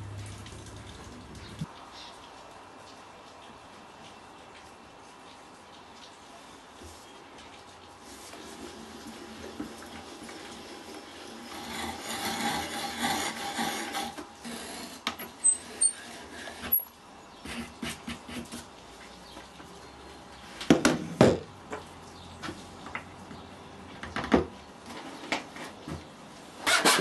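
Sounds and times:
hand brace boring into wood: 26.6 - 27.0.

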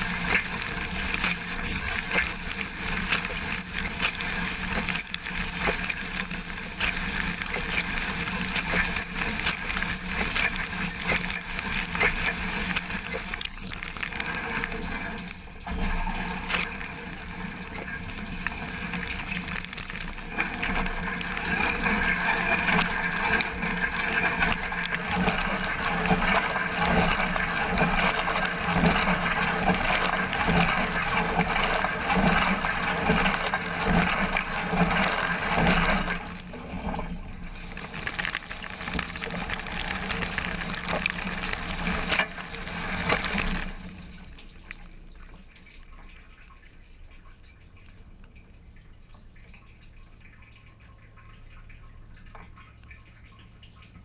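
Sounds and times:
water jets spraying dishes: 0.0 - 15.4
wash pump hum: 0.0 - 47.8
faint dripping: 37.4 - 54.0.

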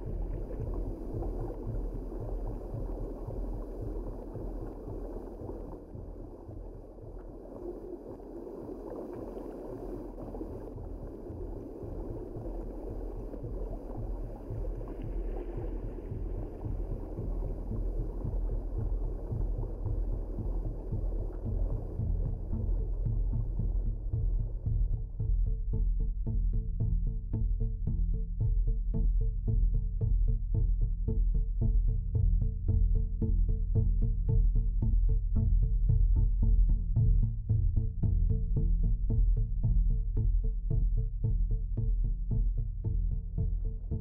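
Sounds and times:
gurgling water: 0.0 - 24.5
underwater low rumble: 0.0 - 44.0.

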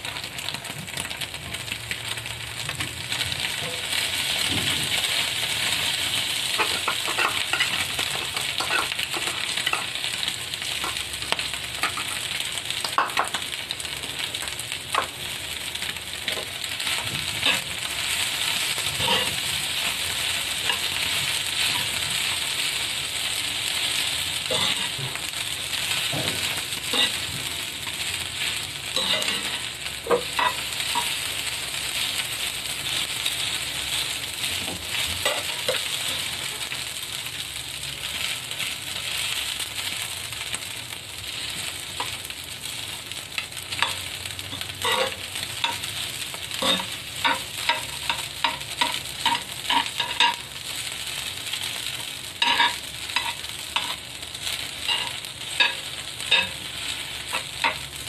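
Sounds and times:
rice sizzling in a pan: 0.0 - 58.0
metal spoons scraping a pan: 6.4 - 9.9, 17.4 - 17.7, 18.8 - 22.4, 24.4 - 25.2, 26.3 - 27.3, 29.0 - 31.2, 35.2 - 36.4, 43.7 - 45.9, 46.5 - 50.4, 52.4 - 54.0, 54.8 - 57.8.

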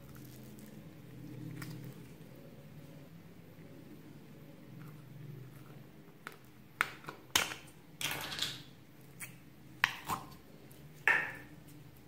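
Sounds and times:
slime squelching: 0.0 - 2.6.

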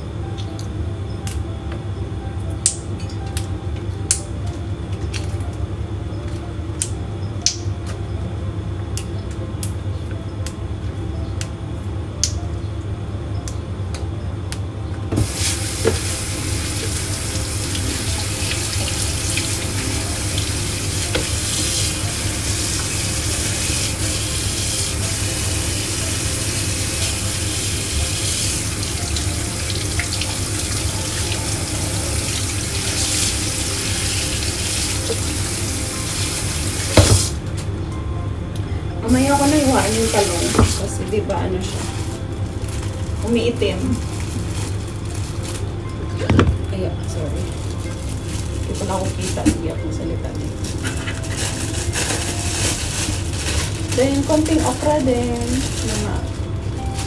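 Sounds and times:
tap water running into colander: 15.1 - 37.4, 39.0 - 41.0.

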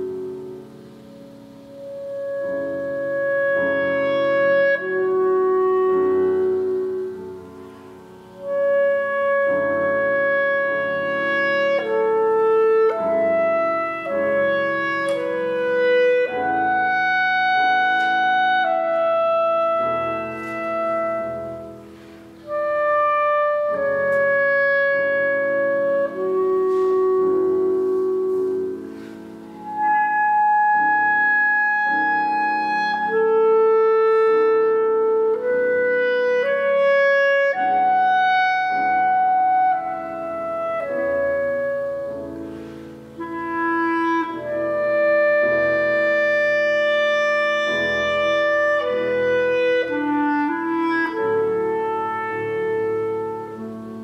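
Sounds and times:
clarinet melody: 0.0 - 54.0
piano accompaniment: 0.0 - 54.0.

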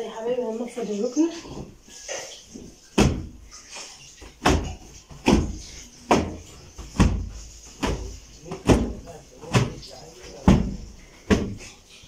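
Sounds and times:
sofa cushions beaten by hand: 2.9 - 3.5, 4.2 - 11.8.

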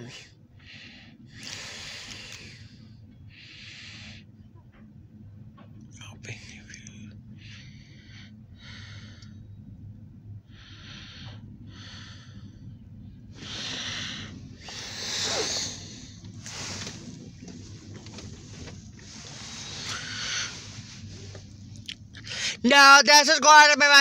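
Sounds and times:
car engine idling: 0.0 - 23.2
short breathy hissing bursts: 0.7 - 4.2, 13.4 - 17.8, 19.0 - 21.4.

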